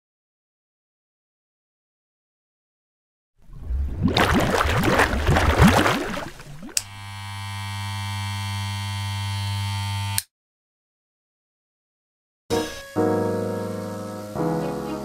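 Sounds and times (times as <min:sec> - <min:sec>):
low buzzing hum: 0:03.5 - 0:10.2
click: 0:06.7 - 0:06.9.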